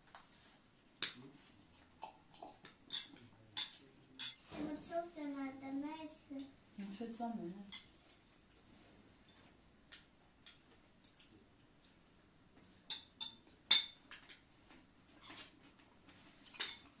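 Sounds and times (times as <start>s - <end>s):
spoons clinking on plates: 2.7s - 4.5s, 7.6s - 8.0s, 12.9s - 14.4s, 16.4s - 17.0s.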